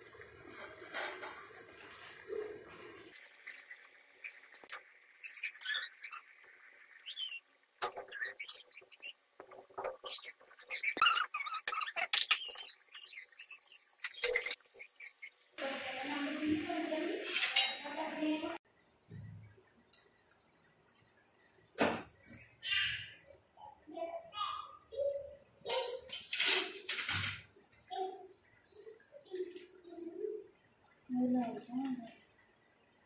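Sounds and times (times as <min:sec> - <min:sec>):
oil sizzling and popping: 0:00.0 - 0:17.2.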